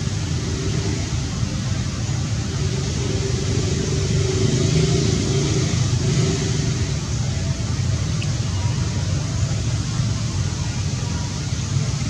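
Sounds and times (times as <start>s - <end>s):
hiss: 0.0s - 7.5s
low engine rumble: 0.0s - 12.0s.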